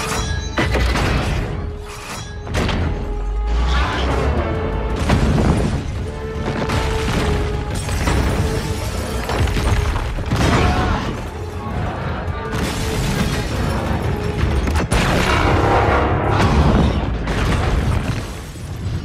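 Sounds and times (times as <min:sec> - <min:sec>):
glass and debris shattering: 0:00.0 - 0:03.1, 0:05.0 - 0:11.6, 0:12.5 - 0:15.7, 0:17.2 - 0:19.0
orchestral film score: 0:00.0 - 0:19.0.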